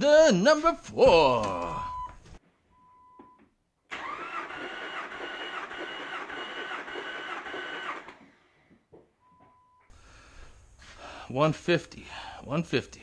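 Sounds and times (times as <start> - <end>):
starter motor cranking engine: 3.9 - 8.3.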